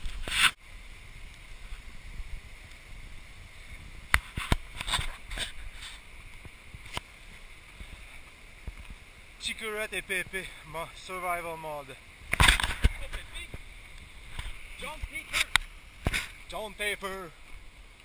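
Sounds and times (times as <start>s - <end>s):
clicks and rustles: 12.3s - 16.4s.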